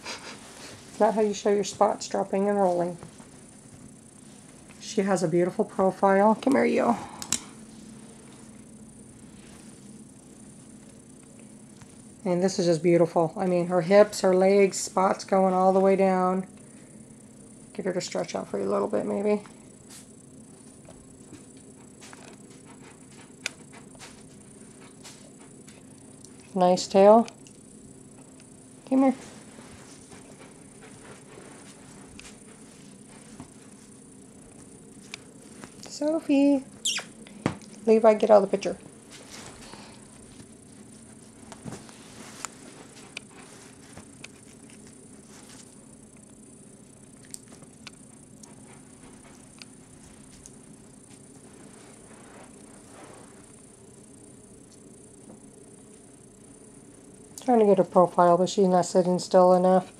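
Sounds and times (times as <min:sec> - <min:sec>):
steady low hum: 0:00.0 - 0:59.9
kitten moving over blanket: 0:39.1 - 0:44.6.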